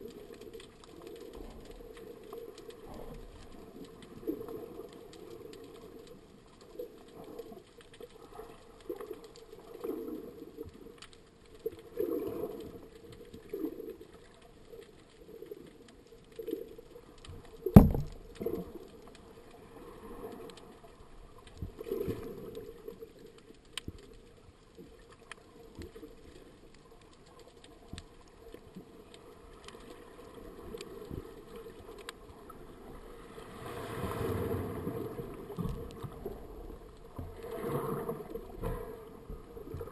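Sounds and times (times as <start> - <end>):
muffled underwater water swishing: 0.0 - 39.9
sharp knock: 17.8 - 18.1.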